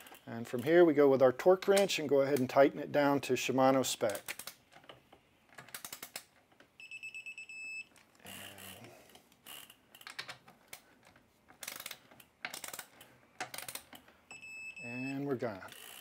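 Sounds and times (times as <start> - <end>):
torque wrench ratcheting clicks: 11.6 - 14.0.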